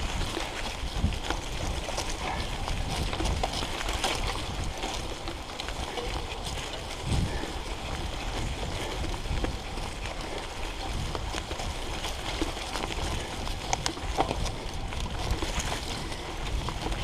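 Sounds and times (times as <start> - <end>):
bike rattling over bumps: 0.0 - 17.0
bike tyres rumbling on rough ground: 0.0 - 17.0.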